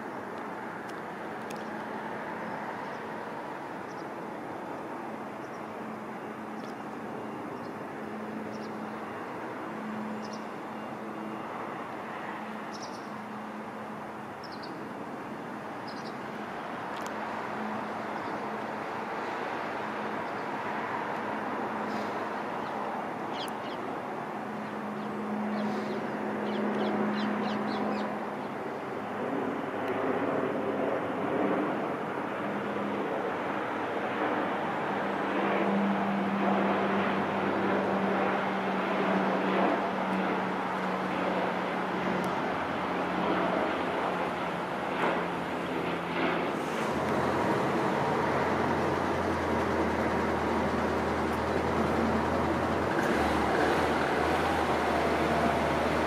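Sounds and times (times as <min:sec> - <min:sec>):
engine rumble: 0:35.6 - 0:56.0.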